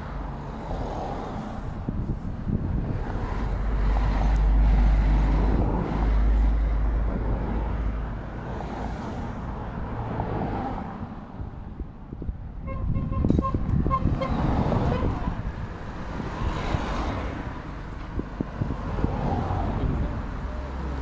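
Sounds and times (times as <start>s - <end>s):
cars passing: 0.0s - 21.0s
vehicles passing with deep rumble: 0.0s - 21.0s
car horn tooting: 12.6s - 15.4s.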